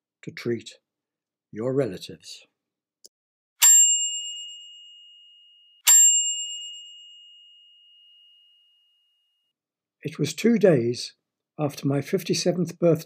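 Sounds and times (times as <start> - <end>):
bus bell ringing: 3.6 - 8.8.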